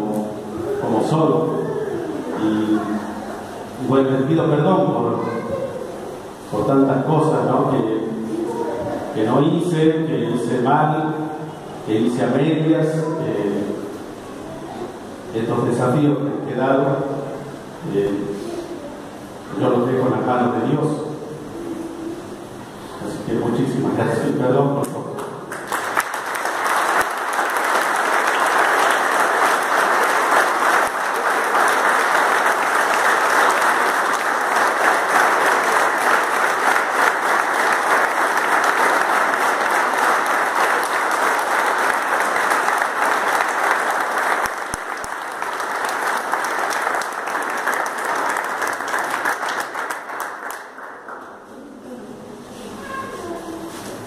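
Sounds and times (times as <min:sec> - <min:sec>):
congregation applauding: 0:25.2 - 0:51.5.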